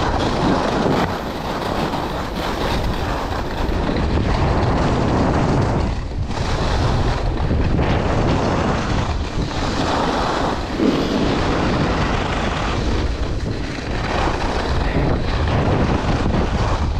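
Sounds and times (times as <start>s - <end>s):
skis scraping on snow: 0.0s - 16.9s
wind buffeting microphone: 0.0s - 16.9s.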